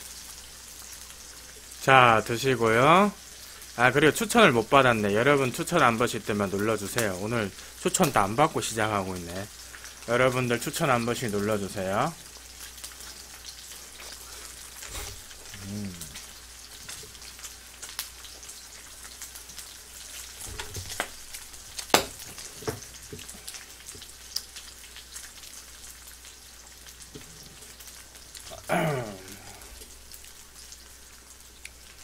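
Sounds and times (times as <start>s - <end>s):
pork sizzling in a frying pan: 0.0s - 32.0s
fat crackling and popping: 5.4s - 32.0s.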